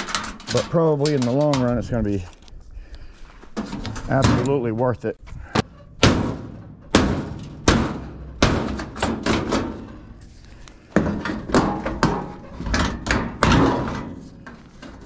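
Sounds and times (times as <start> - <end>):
pry bar banging on sheet metal: 5.6 - 9.9, 11.0 - 14.2.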